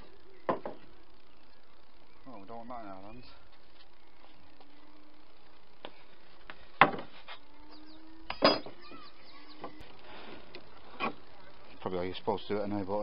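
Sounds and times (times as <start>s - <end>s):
knocks on wooden workbench: 0.5s - 0.8s, 6.8s - 7.1s.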